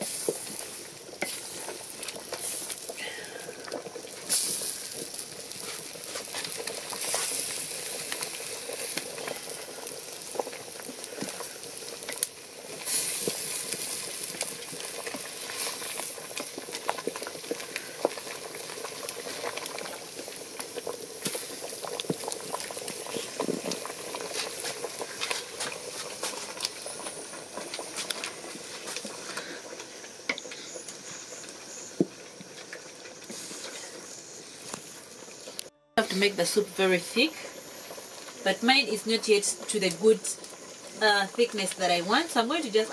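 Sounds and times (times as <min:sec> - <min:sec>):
wooden spoon stirring: 0:00.0 - 0:12.2
sauce boiling in metal pot: 0:00.0 - 0:42.9
wood fire popping: 0:00.0 - 0:42.9.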